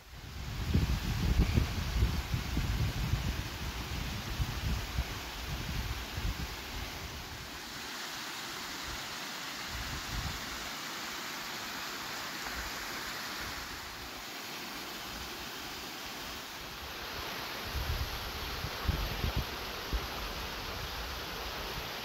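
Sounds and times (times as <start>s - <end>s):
stream rushing over rocks: 0.0s - 22.0s
wind buffeting microphone: 0.2s - 7.3s, 17.7s - 20.1s.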